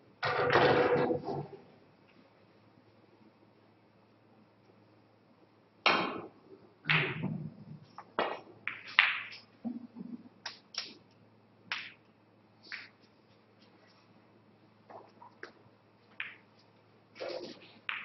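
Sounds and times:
snooker balls clicking: 0:05.9 - 0:13.0, 0:14.8 - 0:18.0.

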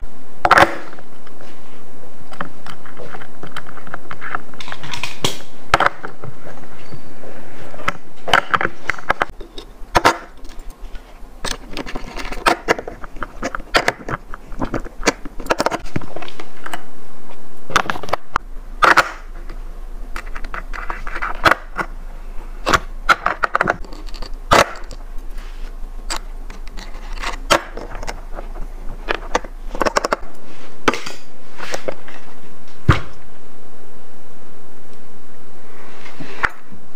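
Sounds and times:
skate tool turning axle nuts: 0:08.3 - 0:16.0, 0:18.8 - 0:21.9, 0:22.6 - 0:30.3.

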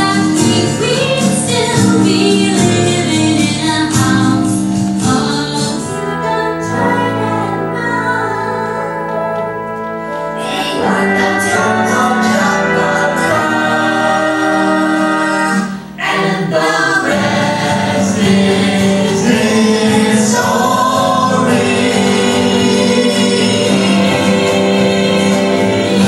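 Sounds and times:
instrumental backing music: 0:00.0 - 0:26.0
voices singing together: 0:10.3 - 0:26.0.

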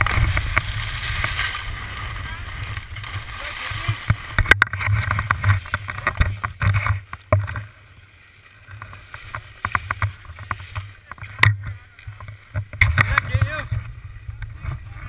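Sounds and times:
skis sliding on snow: 0:00.0 - 0:06.4, 0:07.6 - 0:12.0
camera handling rubbing and knocks: 0:04.4 - 0:07.6.

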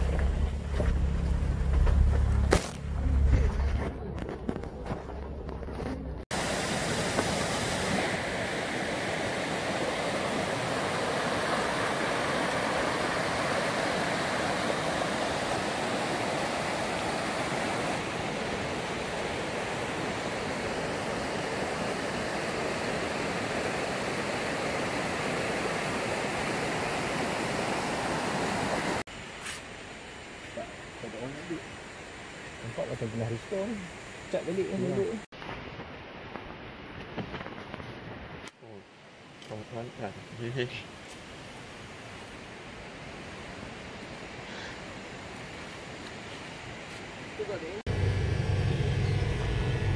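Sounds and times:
river rushing over stones: 0:06.3 - 0:29.0.

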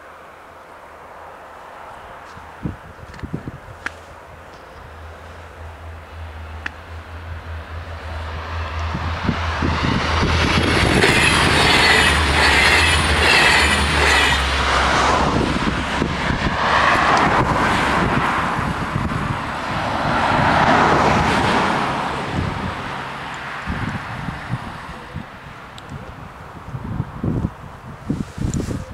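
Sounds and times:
low train engine hum: 0:00.0 - 0:28.9
train wheel and rail noise: 0:00.0 - 0:28.9
wheels squealing: 0:10.4 - 0:14.6.

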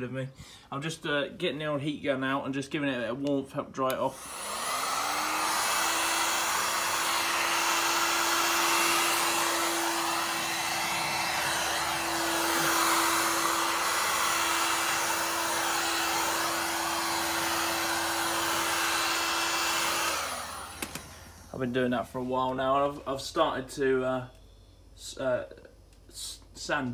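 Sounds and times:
heat gun motor hum: 0:04.1 - 0:21.6
rush of hot air: 0:04.2 - 0:21.5.

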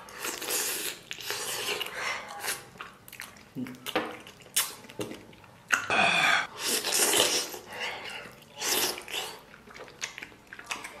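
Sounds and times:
person slurping while eating: 0:05.8 - 0:09.4.

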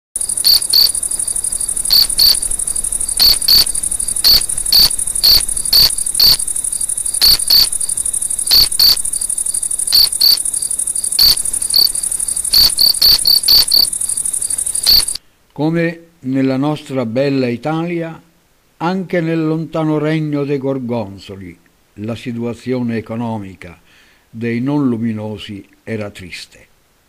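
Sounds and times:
insect chirps: 0:00.2 - 0:15.2
insects trilling: 0:00.2 - 0:15.2.

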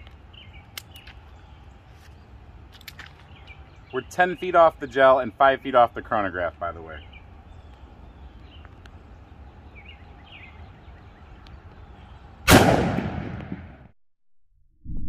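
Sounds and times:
low outdoor background: 0:00.0 - 0:14.0
revolver shot: 0:12.5 - 0:13.8.

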